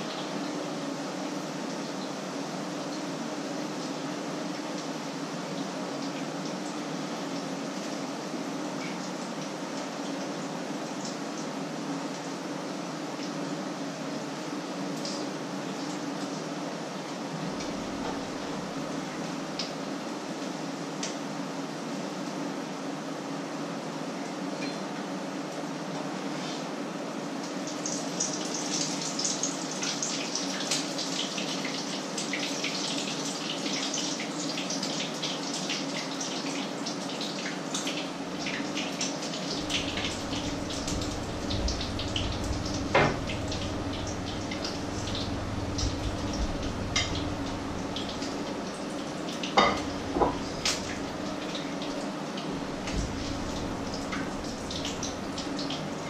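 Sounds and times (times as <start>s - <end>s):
food sizzling in a pan: 27.5s - 56.0s
low hum: 39.5s - 48.7s, 49.8s - 51.5s, 52.4s - 56.0s.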